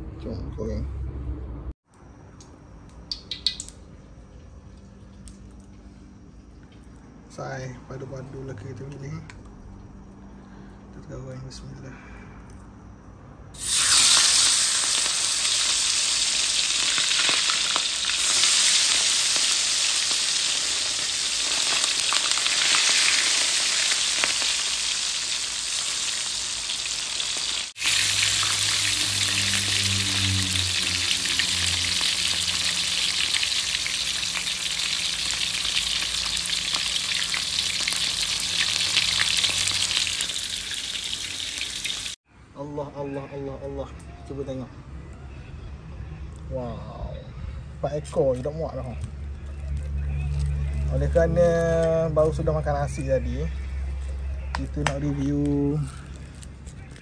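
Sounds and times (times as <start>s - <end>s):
fish sizzling in hot oil: 3.1s - 3.7s, 13.6s - 42.2s.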